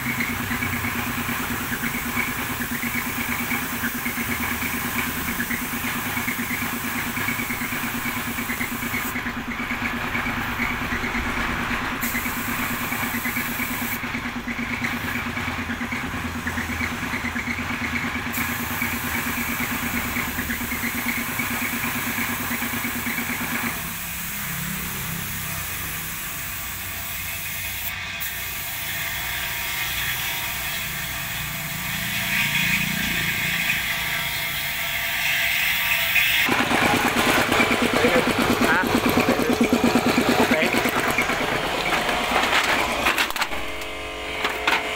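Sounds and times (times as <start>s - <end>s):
spray gun hissing: 0.0s - 10.7s, 12.0s - 15.4s, 16.4s - 25.0s, 25.6s - 29.0s
air compressor humming: 0.0s - 44.9s.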